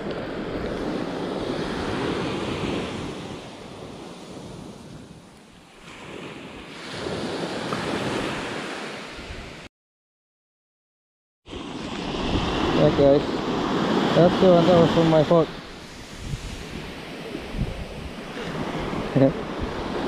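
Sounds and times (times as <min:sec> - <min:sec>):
waves breaking on sandy shore: 0:00.0 - 0:09.7, 0:11.5 - 0:20.0
wind buffeting microphone: 0:11.8 - 0:20.0.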